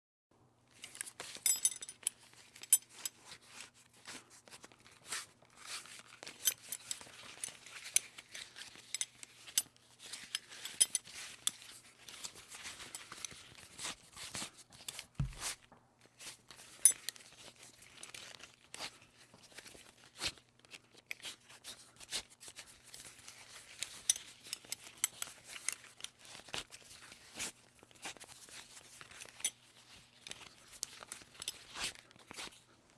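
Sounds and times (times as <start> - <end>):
buckle clicking and clinking: 0.8 - 3.2, 6.2 - 13.4, 23.8 - 26.6.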